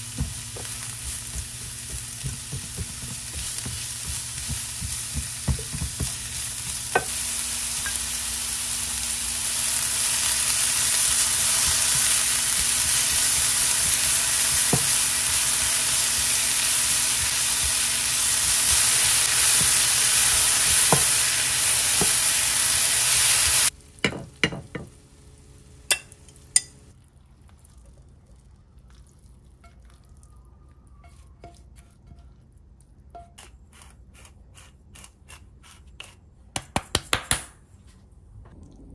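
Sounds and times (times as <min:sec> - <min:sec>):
food sizzling in a frying pan: 0:00.0 - 0:26.8
utensil tapping a pan: 0:00.2 - 0:07.2.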